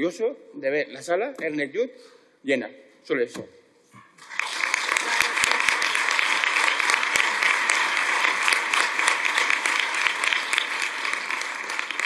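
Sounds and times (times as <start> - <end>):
audience applauding: 4.2 - 12.0.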